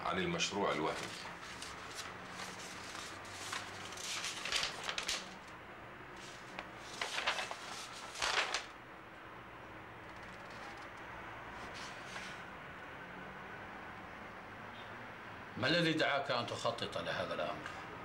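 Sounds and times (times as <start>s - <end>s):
paper rustling: 0.5s - 5.5s, 6.2s - 8.8s, 11.6s - 12.4s.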